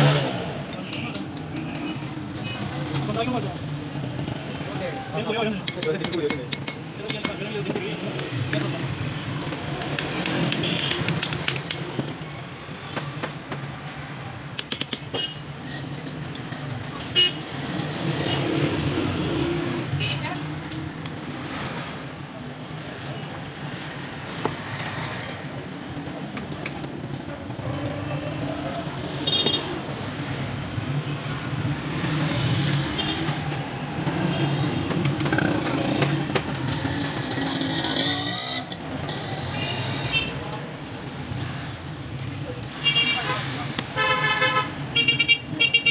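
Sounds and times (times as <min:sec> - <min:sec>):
low traffic hum: 0:00.0 - 0:45.9
hand tools tapping on metal: 0:05.4 - 0:08.8, 0:09.4 - 0:12.4, 0:14.5 - 0:16.6.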